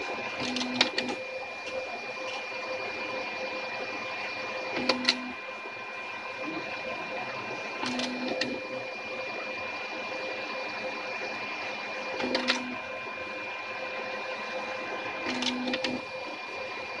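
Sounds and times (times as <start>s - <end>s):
laser printer whirring: 0.0s - 17.0s
printer clicks: 0.4s - 1.8s, 4.8s - 5.3s, 7.8s - 8.6s, 12.2s - 12.7s, 15.3s - 16.0s.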